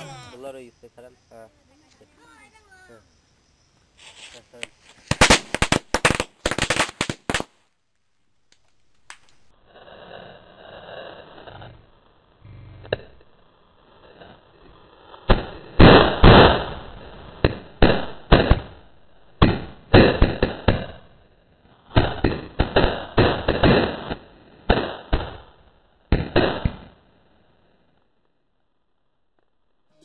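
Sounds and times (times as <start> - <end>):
firecrackers banging: 4.0 - 7.6, 8.5 - 21.1, 21.8 - 25.5.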